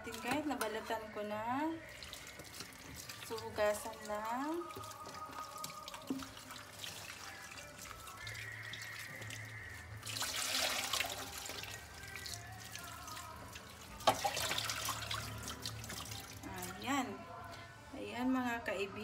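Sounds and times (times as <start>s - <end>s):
tap water running into steel sink: 2.0s - 9.4s, 12.8s - 16.5s.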